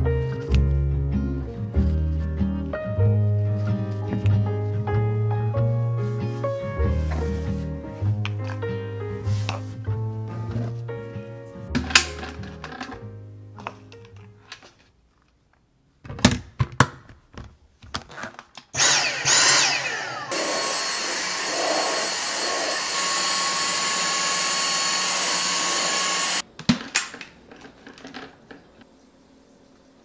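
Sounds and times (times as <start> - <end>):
vacuum handling clicks and knocks: 11.8 - 13.0
vacuum motor whining: 18.8 - 26.4.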